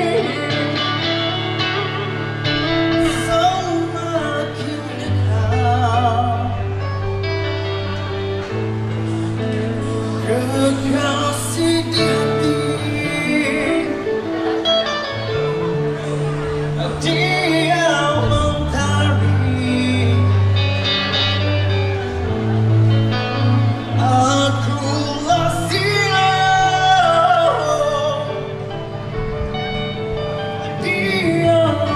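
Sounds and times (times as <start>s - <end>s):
man singing: 0.0s - 7.2s, 9.7s - 14.6s, 16.0s - 21.5s, 23.4s - 29.1s, 30.4s - 31.9s
bass guitar: 0.0s - 31.9s
electric guitar: 0.0s - 31.9s.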